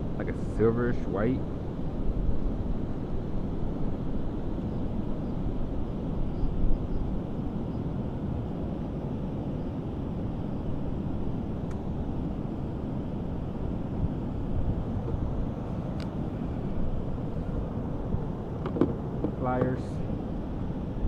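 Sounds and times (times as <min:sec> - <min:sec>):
wind buffeting microphone: 0:01.0 - 0:21.0
river water rushing: 0:10.9 - 0:21.0.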